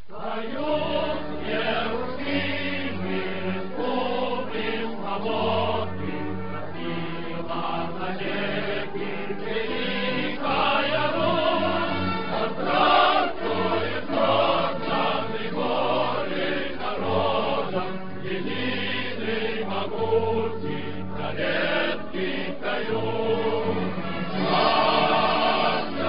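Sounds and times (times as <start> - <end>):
choir singing held chords: 0.0 - 26.0.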